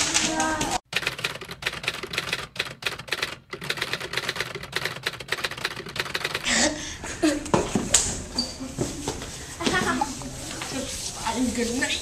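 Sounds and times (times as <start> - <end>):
typewriter keystrokes clattering: 0.0 - 6.5.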